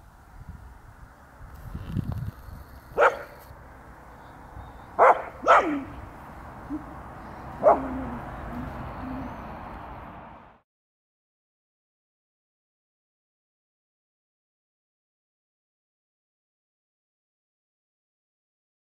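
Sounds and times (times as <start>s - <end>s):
puppy barking: 2.9s - 3.5s, 4.9s - 7.0s, 7.6s - 9.4s.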